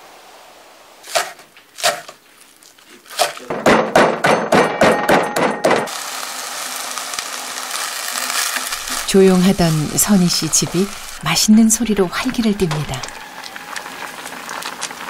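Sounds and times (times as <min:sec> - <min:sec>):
knife chopping on wooden board: 0:01.1 - 0:02.2
food sizzling in a pan: 0:05.9 - 0:15.0.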